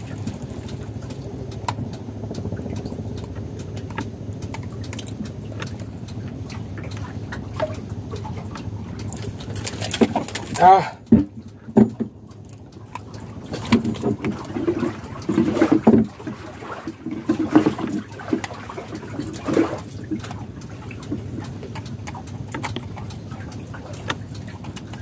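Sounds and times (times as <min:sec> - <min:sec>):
water sloshing against boat: 0:00.0 - 0:25.0
clicks and knocks of fishing line: 0:00.2 - 0:16.1.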